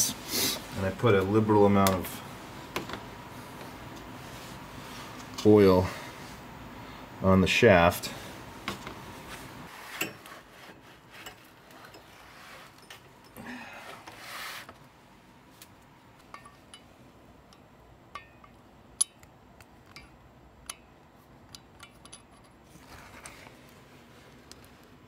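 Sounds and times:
light metallic clicks and taps: 0:17.5 - 0:22.6
handling rustle: 0:22.2 - 0:25.0.

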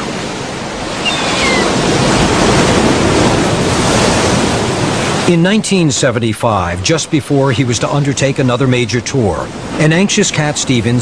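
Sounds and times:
ocean surf rushing: 0:00.0 - 0:11.0
short falling bird cry: 0:01.0 - 0:01.8.

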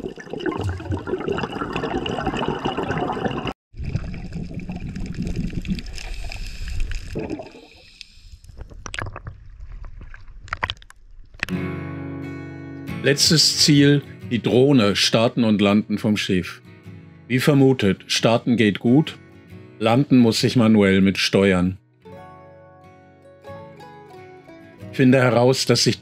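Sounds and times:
air bubbles gurgling underwater: 0:00.0 - 0:07.8
water splashing at surface: 0:00.0 - 0:07.9.

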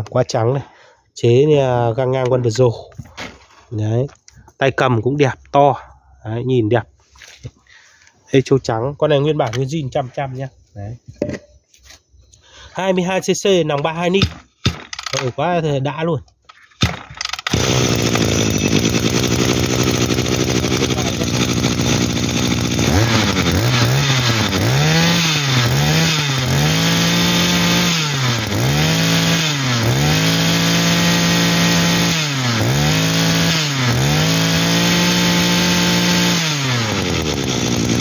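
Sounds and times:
brush-cutter engine idling and revving: 0:16.8 - 0:38.0.

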